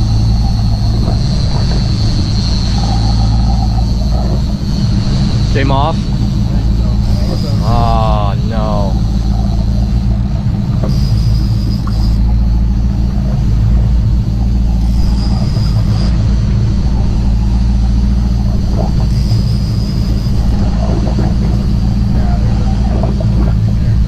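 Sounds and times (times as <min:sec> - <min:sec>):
boat engine droning: 0:00.0 - 0:24.0
thin high whine: 0:00.0 - 0:24.0.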